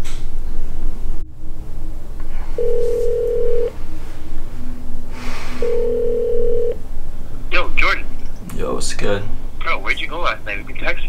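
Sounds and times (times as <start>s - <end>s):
low steady rumble: 0.0s - 11.0s
phone ringback tone: 2.6s - 3.9s, 4.6s - 6.8s.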